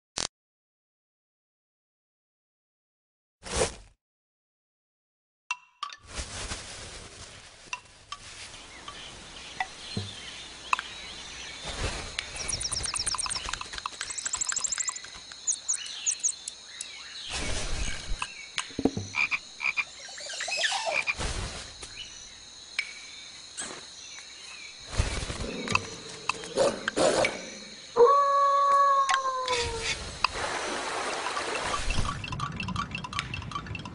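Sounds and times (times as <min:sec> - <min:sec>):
tissue paper rustling: 0:06.1 - 0:08.5
rapid trill of clicks: 0:12.2 - 0:16.6, 0:32.2 - 0:33.9.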